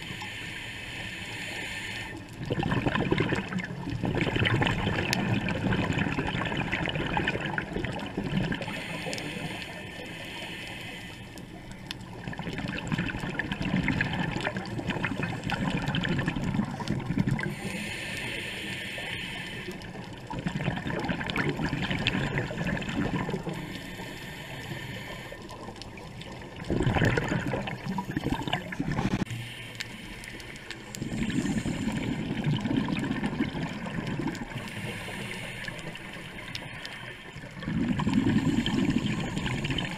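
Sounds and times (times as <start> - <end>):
regulator hiss: 0.0 - 2.2, 8.7 - 11.4, 17.5 - 19.8
underwater exhaled air bubbling: 1.4 - 39.9.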